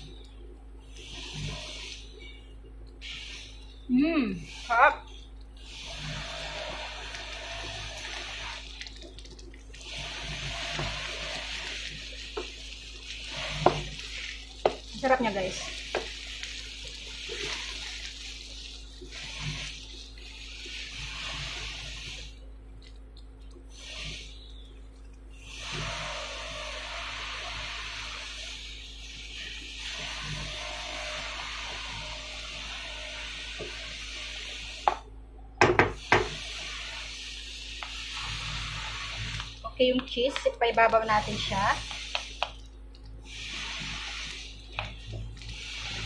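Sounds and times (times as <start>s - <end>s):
steady hiss: 0.0s - 46.0s
fried rice sizzling in a wok: 9.8s - 23.0s, 23.6s - 46.0s.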